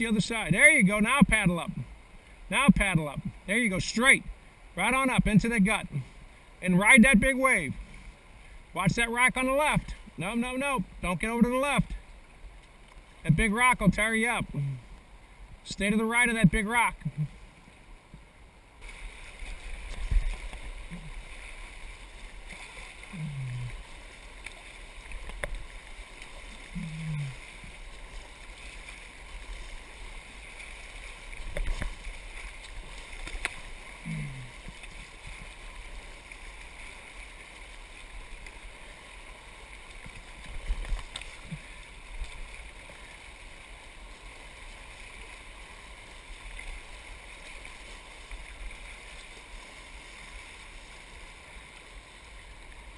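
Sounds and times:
whitewater rushing: 18.8 - 52.9.

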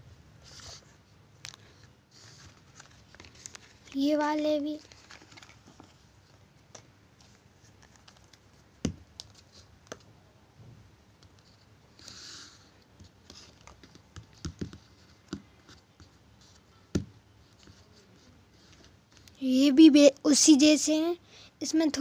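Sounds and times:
paper rustle: 0.4 - 10.0.

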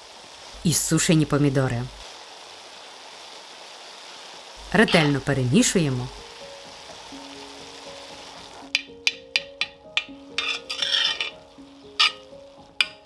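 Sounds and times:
soft background music: 4.6 - 13.0
utensil tapping and scraping wok: 4.8 - 5.2, 8.4 - 13.0.

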